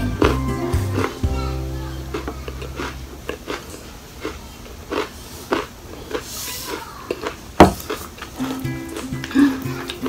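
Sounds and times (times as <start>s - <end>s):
crunchy chewing: 2.1s - 10.0s.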